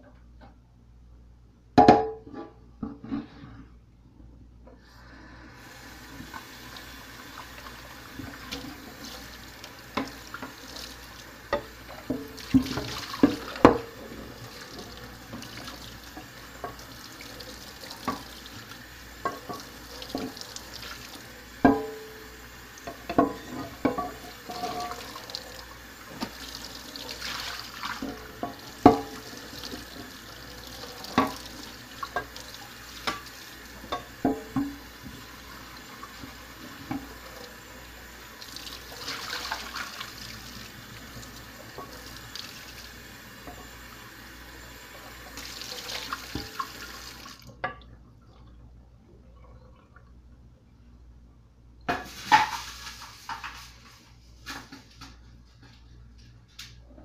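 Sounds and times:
tap water running into sink: 5.7s - 22.1s, 22.7s - 47.8s
dishes clinking: 22.9s - 25.3s.

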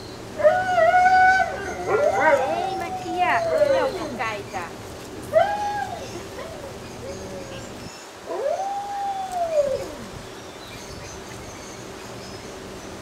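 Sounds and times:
puppy howling: 0.4s - 4.3s, 5.3s - 10.2s.

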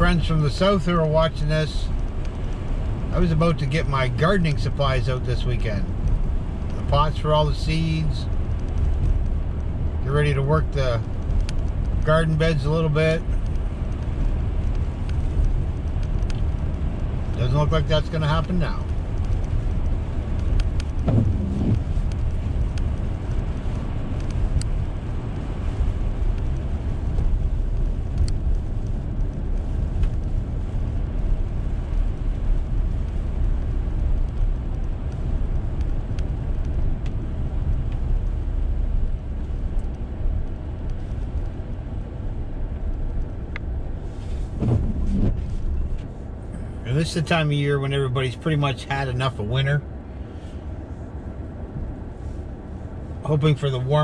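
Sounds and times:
car engine hum: 0.0s - 54.0s
tyres on slushy road: 0.0s - 54.0s
light ticks: 1.9s - 44.4s
windshield wipers sweeping: 13.6s - 47.5s.

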